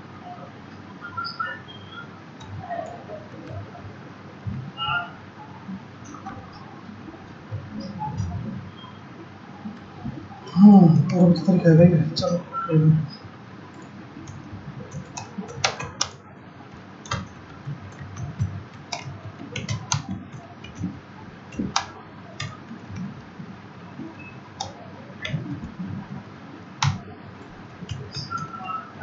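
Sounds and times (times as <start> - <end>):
computer keyboard typing: 2.4 - 3.7, 13.7 - 23.4, 24.0 - 26.2, 26.8 - 29.0.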